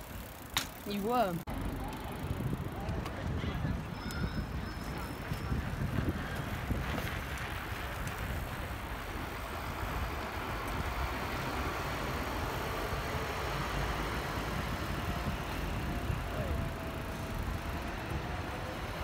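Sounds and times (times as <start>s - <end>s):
bicycle tyres rolling on tarmac: 0.0s - 19.0s
wind rumble on microphone: 1.5s - 19.0s.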